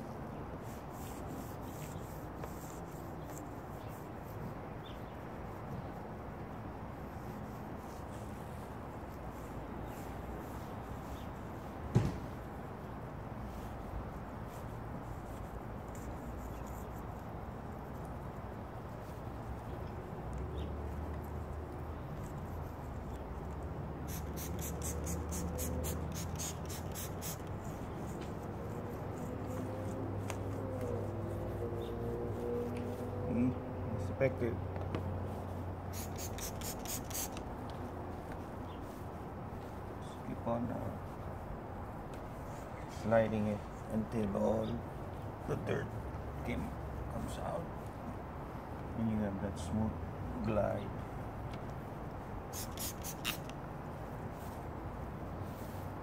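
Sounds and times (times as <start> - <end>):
clay bar rubbing on car paint: 0.0 - 33.2, 35.3 - 41.2, 51.8 - 55.9
spray bottle squirting: 24.1 - 27.7, 35.9 - 37.5, 52.5 - 53.6.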